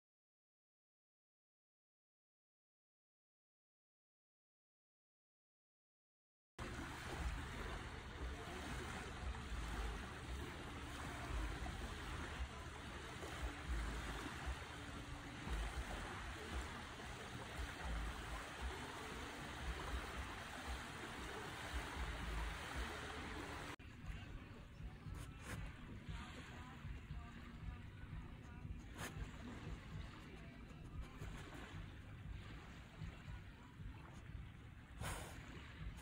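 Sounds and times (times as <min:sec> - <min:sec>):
outdoor rush of air: 0:06.6 - 0:23.8, 0:34.8 - 0:36.0.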